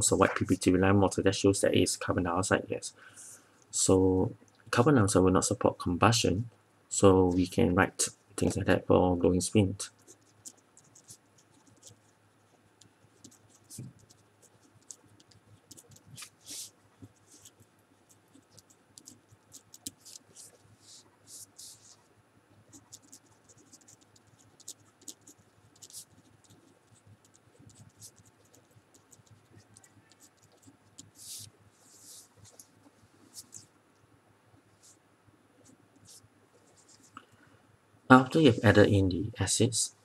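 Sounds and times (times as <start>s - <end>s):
pen scratching on paper: 9.9s - 22.0s, 22.7s - 32.7s.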